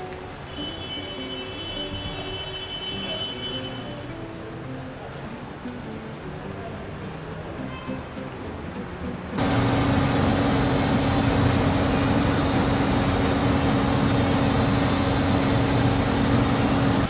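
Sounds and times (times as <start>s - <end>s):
loud even machine noise: 9.4s - 17.0s
machine low hum: 9.4s - 17.0s.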